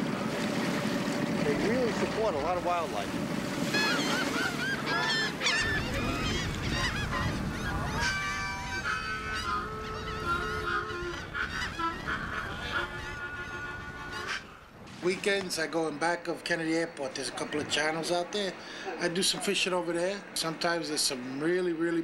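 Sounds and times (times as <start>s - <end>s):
geese honking: 3.6s - 14.6s.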